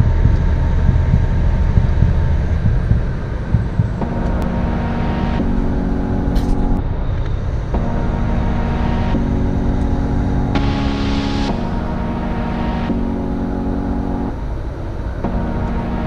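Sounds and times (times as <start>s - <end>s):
music with held chords: 0.0s - 16.0s
road noise inside moving vehicle: 13.6s - 15.3s.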